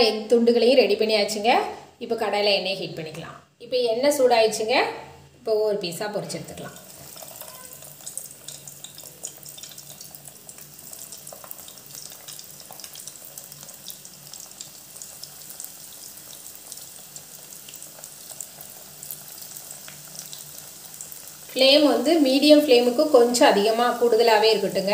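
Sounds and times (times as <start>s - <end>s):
food deep-frying in hot oil: 6.1s - 24.9s.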